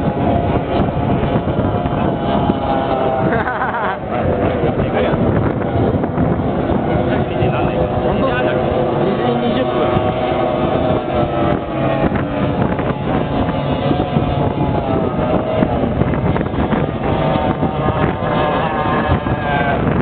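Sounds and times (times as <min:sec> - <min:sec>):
powerboat engines droning: 0:00.0 - 0:20.0
wind buffeting microphone: 0:00.0 - 0:20.0.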